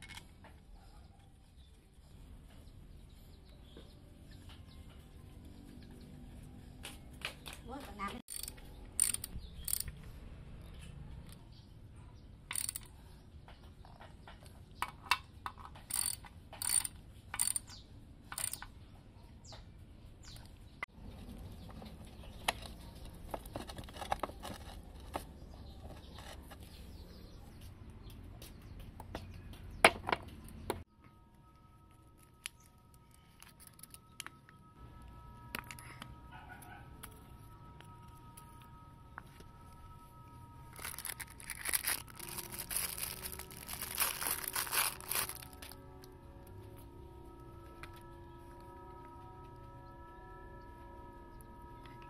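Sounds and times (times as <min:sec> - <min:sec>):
ratchet wrench turning: 0:08.3 - 0:09.9, 0:12.5 - 0:12.9, 0:15.8 - 0:17.8, 0:18.4 - 0:18.6
metallic clicks and clinks: 0:08.3 - 0:10.1, 0:12.5 - 0:13.0, 0:14.8 - 0:18.7
low steady hum: 0:30.3 - 0:52.0.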